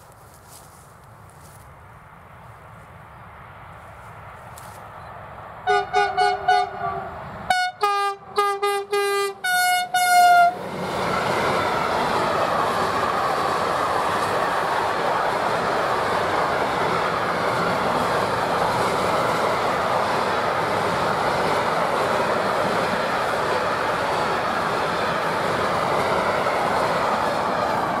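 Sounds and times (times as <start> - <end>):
two-tone train horn toots: 5.6 - 10.6
train wheels running past: 5.6 - 28.0.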